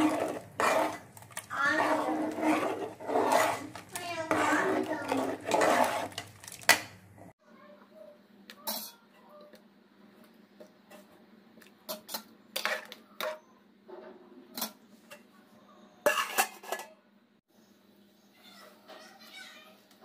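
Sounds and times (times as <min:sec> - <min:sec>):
ladle scraping steel pot: 0:00.0 - 0:07.3.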